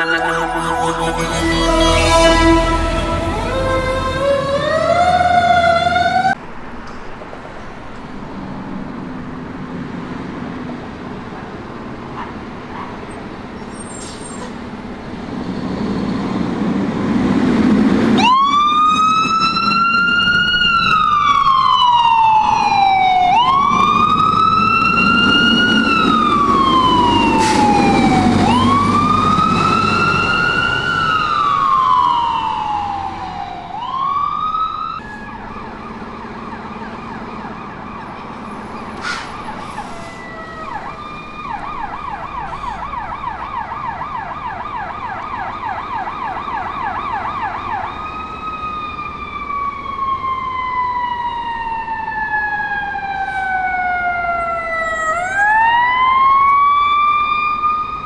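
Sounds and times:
fire engine siren wailing: 0.0s - 6.4s, 15.7s - 58.0s
street traffic: 0.0s - 58.0s.

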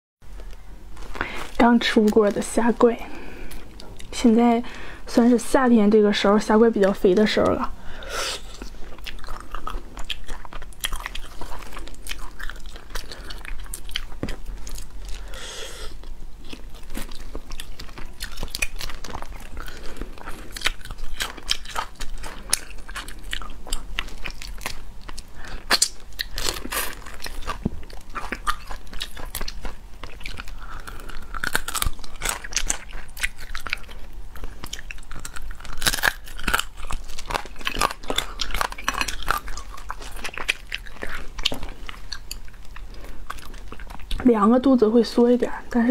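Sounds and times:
wet chewing: 1.0s - 44.4s
sharp crunches and snaps: 16.0s - 44.3s
shells cracking and peeling: 16.6s - 44.0s.

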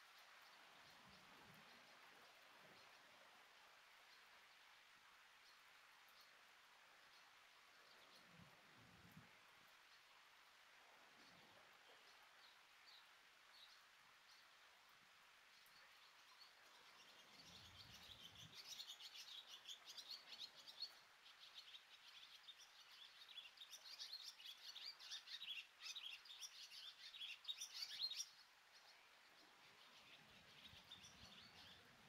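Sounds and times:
faint rain hiss: 0.0s - 32.0s
small bird chirping: 15.6s - 32.0s.

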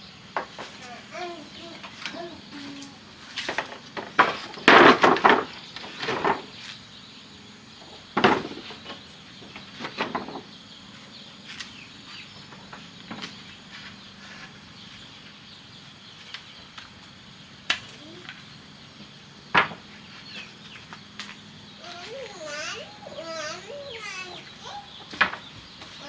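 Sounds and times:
faint insects or birds: 0.0s - 26.0s
wooden knocks and clatter: 0.4s - 0.9s, 3.4s - 6.6s, 7.8s - 10.6s, 12.4s - 13.5s, 19.5s - 21.3s, 25.0s - 26.0s.

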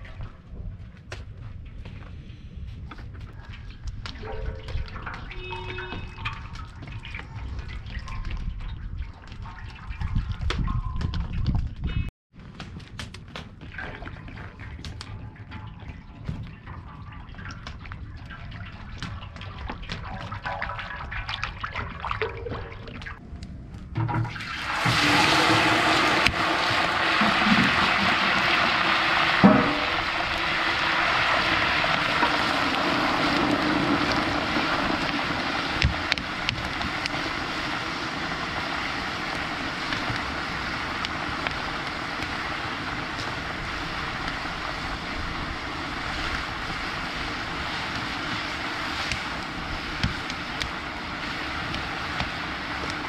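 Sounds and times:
meat sizzling in hot oil: 24.5s - 53.0s.

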